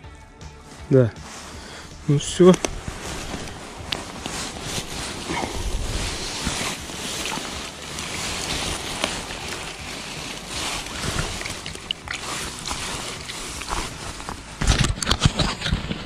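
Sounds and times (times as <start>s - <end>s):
wind buffeting microphone: 2.2s - 10.1s.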